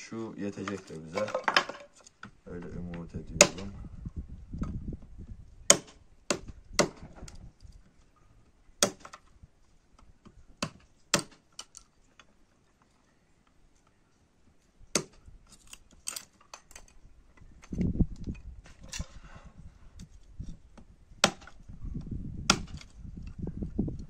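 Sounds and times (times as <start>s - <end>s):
hatchet chopping wood: 3.4s - 3.7s, 5.7s - 7.2s, 8.8s - 9.3s, 10.6s - 11.7s, 14.9s - 15.2s, 20.8s - 21.6s, 22.5s - 22.9s.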